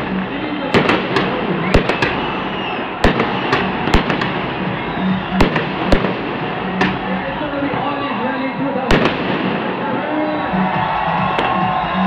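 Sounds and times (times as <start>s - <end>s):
continuous din of fireworks: 0.0s - 12.0s
sharp firework bangs: 0.7s - 7.1s, 8.9s - 9.9s.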